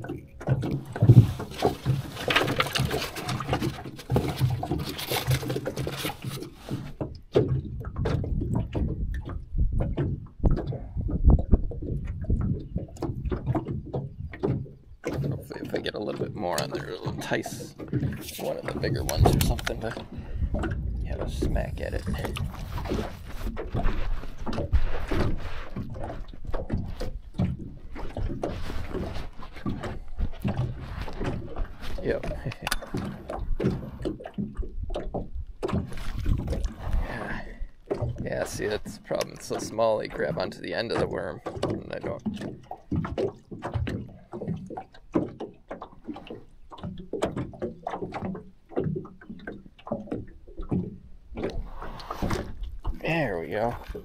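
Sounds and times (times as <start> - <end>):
small waves slapping a boat hull: 0.0 - 54.0
water splashing and sloshing: 0.0 - 54.0
low rumble: 18.9 - 22.8.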